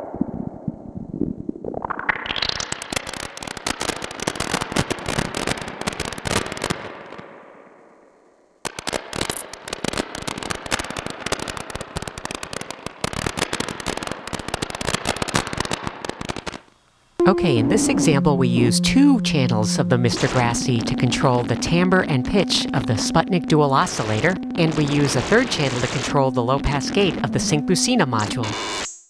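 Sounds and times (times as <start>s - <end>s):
chaotic crackling synthesizer notes: 1.5s - 6.9s, 8.6s - 16.6s, 17.2s - 28.9s.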